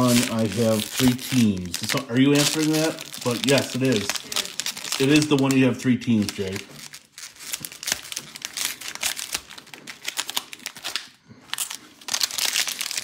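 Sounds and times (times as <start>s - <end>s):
plastic wrappers crinkling: 0.0s - 13.0s.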